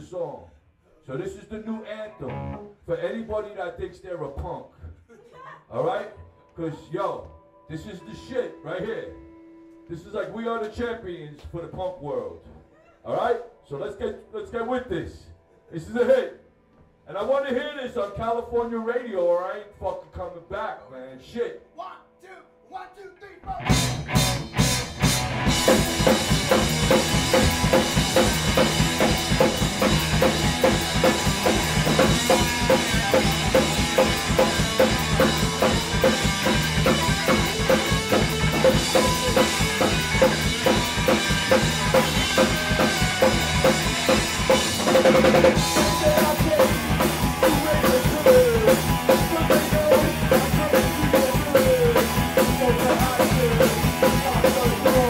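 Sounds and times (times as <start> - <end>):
person counting in: 2.0 - 2.8, 45.6 - 55.0
punk rock band playing: 2.3 - 2.7, 23.5 - 55.0.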